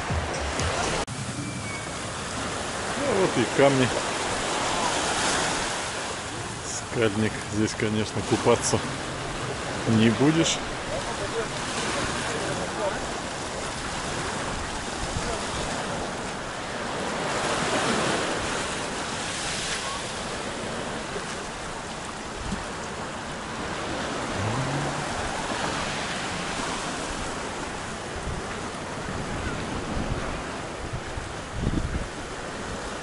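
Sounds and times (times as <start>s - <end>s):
small waves breaking on rocks: 2.0s - 33.0s
wind buffeting microphone: 23.6s - 32.8s.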